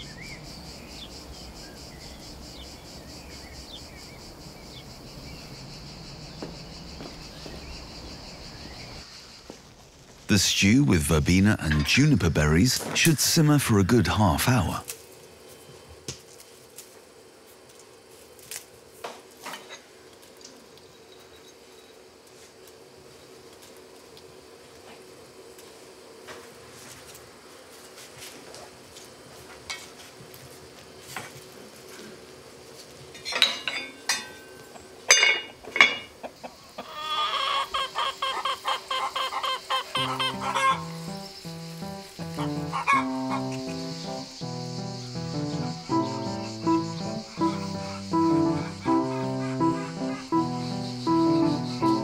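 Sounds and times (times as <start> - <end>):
hen clucking: 36.2 - 41.2, 42.2 - 44.4, 45.0 - 52.0.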